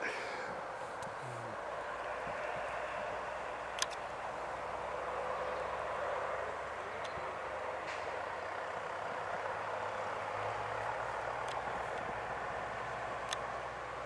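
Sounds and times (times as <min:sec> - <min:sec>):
distant bus engines droning: 0:00.0 - 0:14.0
faint clicks: 0:03.7 - 0:04.1, 0:13.2 - 0:13.5.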